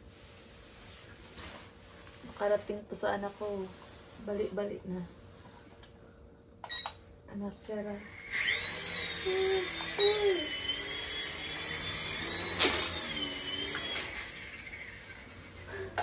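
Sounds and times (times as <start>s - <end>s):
toy helicopter motor whining: 8.0s - 15.9s.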